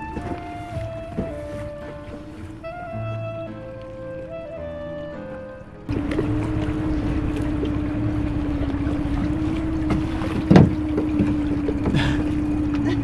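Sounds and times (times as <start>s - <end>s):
background music: 0.0s - 6.8s
outboard motor humming: 0.0s - 13.0s.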